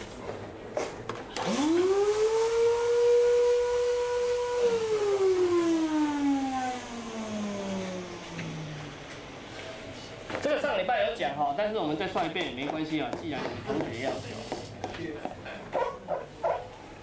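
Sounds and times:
siren wailing: 0:01.5 - 0:09.2.

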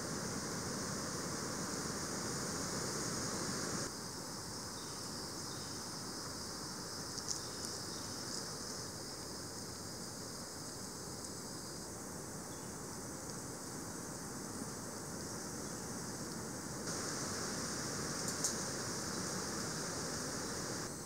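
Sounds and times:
insect chorus high shrill hiss: 0:00.0 - 0:21.0
sharp tick: 0:18.2 - 0:18.6.

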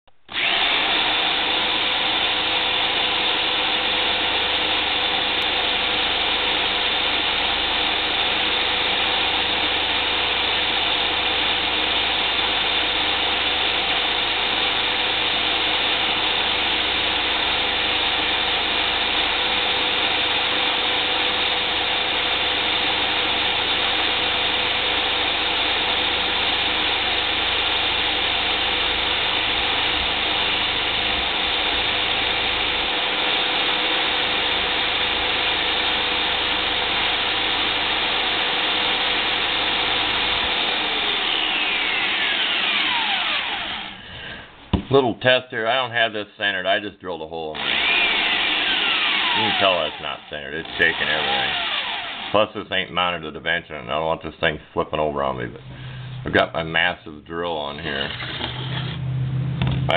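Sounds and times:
drill-driven wood lathe whining: 0:00.2 - 0:44.8, 0:47.5 - 0:52.6, 0:57.8 - 0:59.8
rattling mechanical noise: 0:57.8 - 0:59.9.

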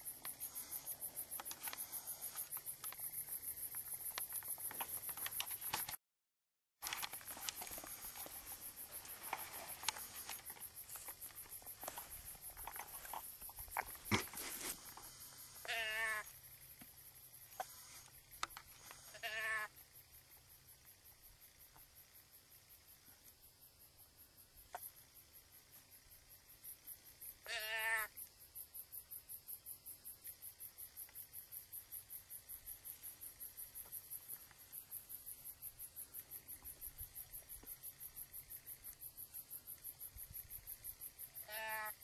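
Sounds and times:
crickets chirping: 0:00.0 - 0:06.0, 0:06.8 - 0:42.0
clicks and rustles: 0:00.2 - 0:06.0, 0:06.8 - 0:15.1
deer bleat call: 0:15.6 - 0:16.3, 0:19.1 - 0:19.7, 0:27.4 - 0:28.1, 0:41.4 - 0:42.0.

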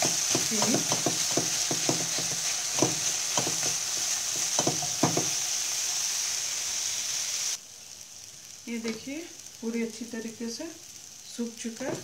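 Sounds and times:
spatula scraping a pan: 0:00.0 - 0:05.4
sizzling hiss: 0:00.0 - 0:12.0.

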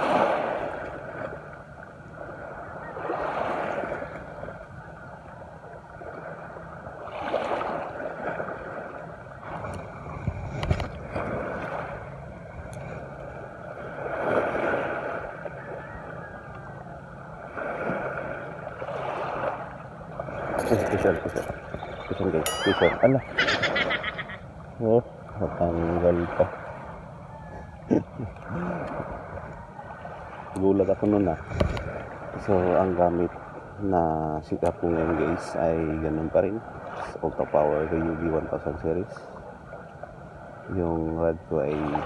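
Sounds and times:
small waves washing ashore: 0:00.0 - 0:42.0.

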